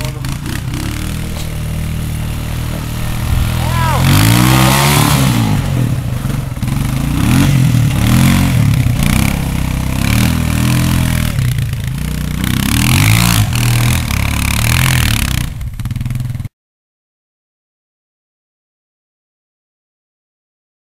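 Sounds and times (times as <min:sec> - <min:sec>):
atv engine revving: 0:00.0 - 0:16.5.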